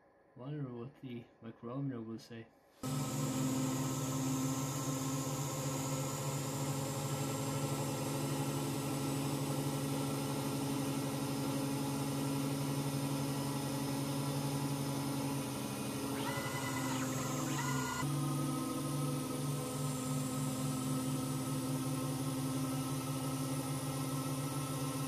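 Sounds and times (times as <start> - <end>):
lathe spindle whining: 2.8 - 25.0.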